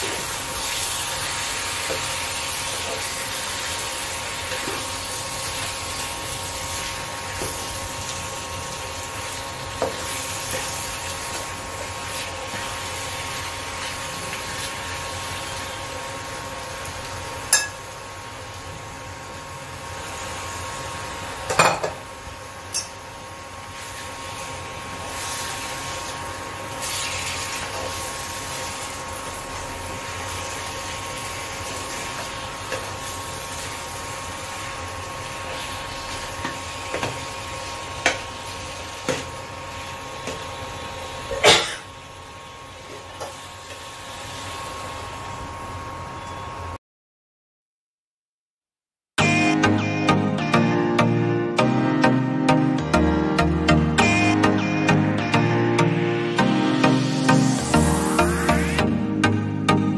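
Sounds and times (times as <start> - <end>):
meat and potatoes sizzling: 0.0 - 45.6.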